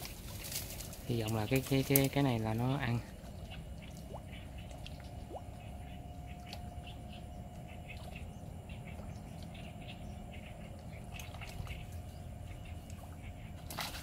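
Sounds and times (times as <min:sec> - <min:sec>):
low steady rumble: 0:00.0 - 0:14.0
duckling splashing on water: 0:10.6 - 0:14.0.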